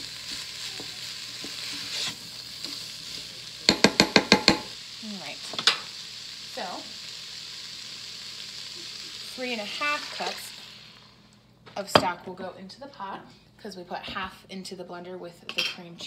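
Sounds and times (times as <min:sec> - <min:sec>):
food sizzling in a pot: 0:00.0 - 0:12.3
spoon rapping against pot: 0:03.7 - 0:04.7.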